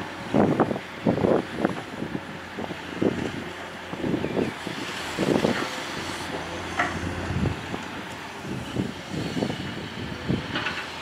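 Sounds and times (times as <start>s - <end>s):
excavator diesel engine working: 0.0s - 11.0s
knocks and clanks: 6.7s - 7.1s.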